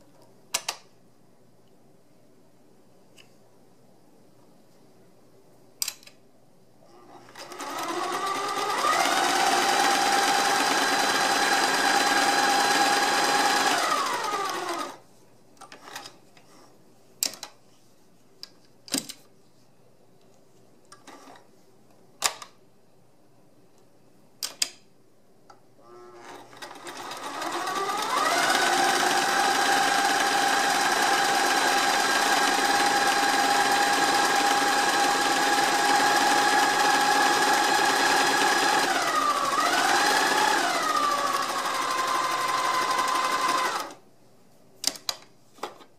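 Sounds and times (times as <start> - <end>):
sewing machine running: 7.3 - 15.0, 26.0 - 44.0.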